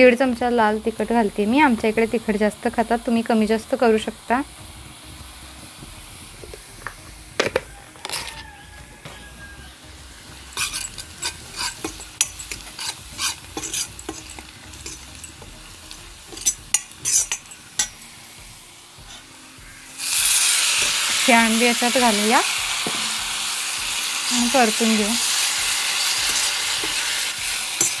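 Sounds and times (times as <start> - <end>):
oil sizzling: 0.0 - 28.0
steel ladle scraping a pan: 7.5 - 8.5, 10.2 - 18.2, 19.9 - 21.3, 22.8 - 28.0.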